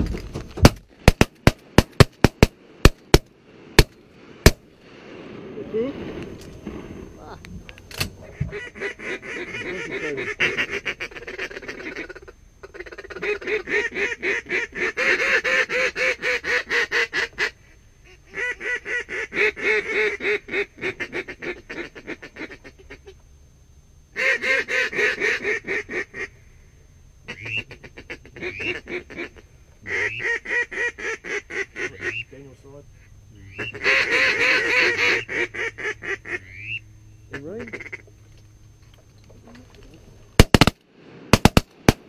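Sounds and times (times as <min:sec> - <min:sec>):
duck call quacking: 0:08.3 - 0:23.2, 0:24.2 - 0:26.3, 0:27.3 - 0:32.4, 0:33.0 - 0:38.0.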